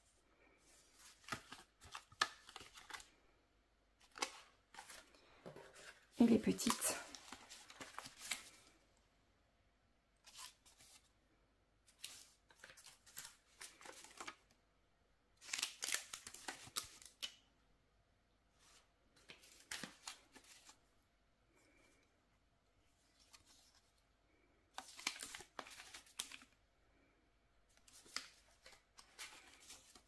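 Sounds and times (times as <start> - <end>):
plastic packaging rustling and crinkling: 4.0 - 8.8, 11.9 - 14.6, 15.4 - 17.4, 24.7 - 26.6, 27.8 - 30.0.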